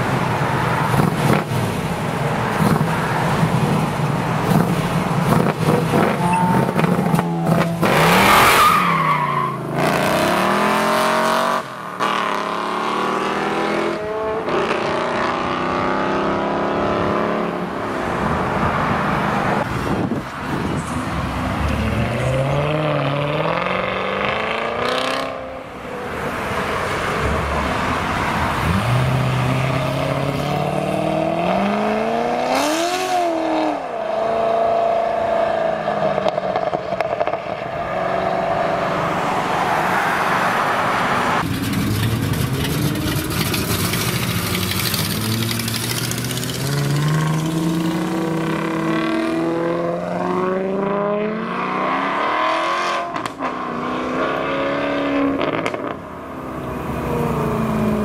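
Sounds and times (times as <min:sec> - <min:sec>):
car engine climbing through gears: 0:35.6 - 0:58.0.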